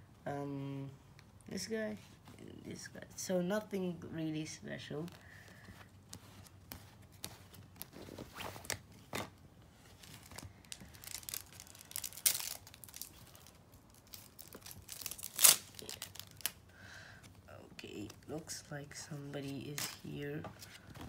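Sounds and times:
foil packet crinkling: 10.0 - 16.6
foil packet ripping: 10.0 - 16.6.

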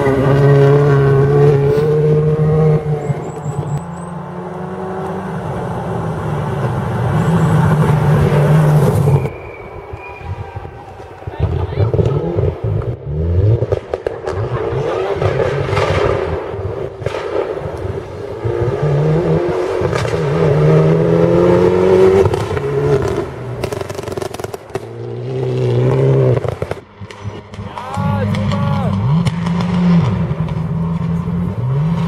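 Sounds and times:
rally car engine passing: 0.0 - 32.0
exhaust crackles and pops: 7.7 - 18.7, 19.6 - 20.4, 22.1 - 32.0.

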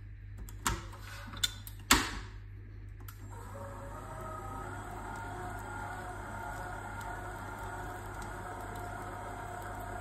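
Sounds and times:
stand mixer motor humming: 3.3 - 10.0.

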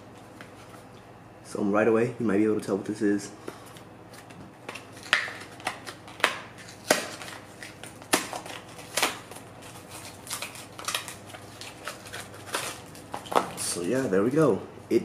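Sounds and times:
packing material crackling: 4.7 - 14.2.

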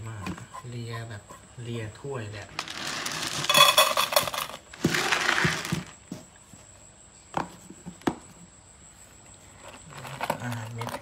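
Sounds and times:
kibble poured into metal bowl: 2.6 - 5.9.

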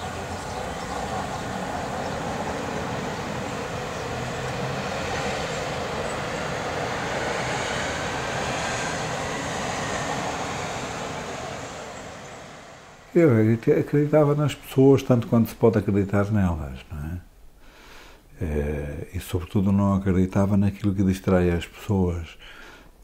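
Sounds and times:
tram rumbling on rails: 0.0 - 16.6
faint high whine: 0.0 - 17.6.

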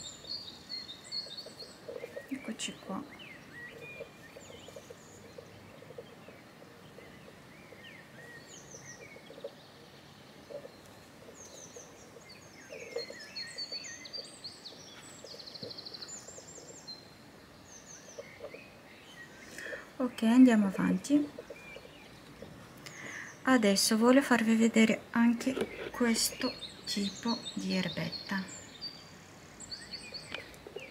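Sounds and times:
faint steady hiss: 0.0 - 30.9
small birds chirping: 0.0 - 30.9
buzzy bird trill: 25.2 - 29.0.

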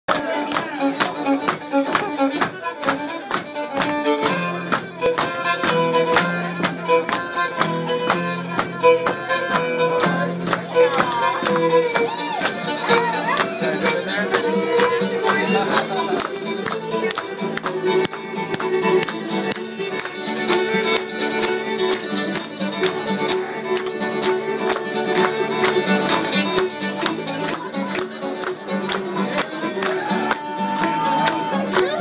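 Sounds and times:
fiddle playing: 0.1 - 32.0
strummed acoustic guitar: 0.1 - 32.0.

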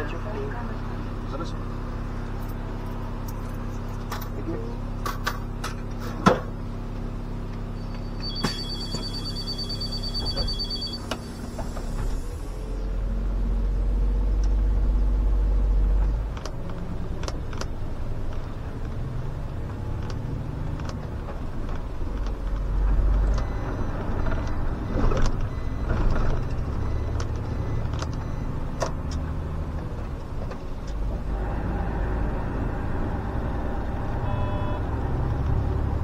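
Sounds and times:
bus diesel engine drone: 0.0 - 36.0.

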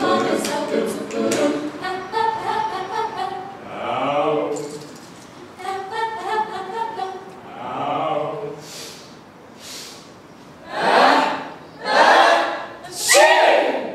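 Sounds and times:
vocal ensemble singing in harmony: 0.0 - 8.9, 10.6 - 13.9
short hissing sounds: 8.6 - 10.5.

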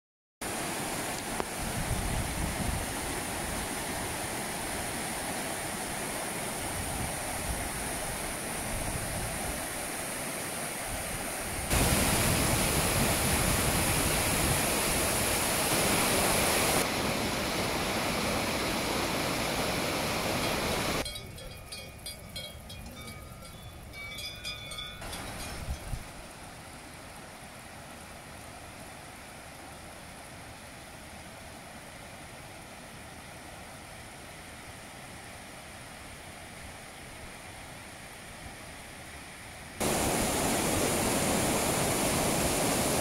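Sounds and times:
whitewater stream roaring: 0.4 - 21.0, 39.8 - 43.0.

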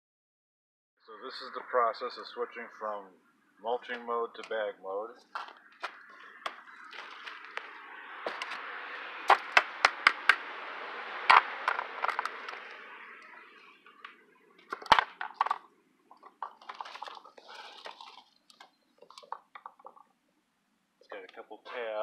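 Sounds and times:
plastic parts clicking: 11.3 - 12.8, 14.6 - 20.0.

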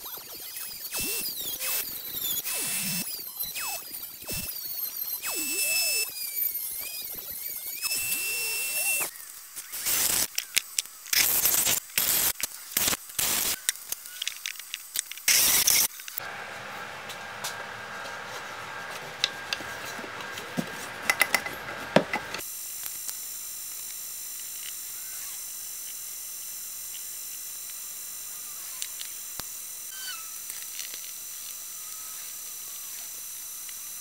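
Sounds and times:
metal rod knocking on wood: 21.1 - 22.3.

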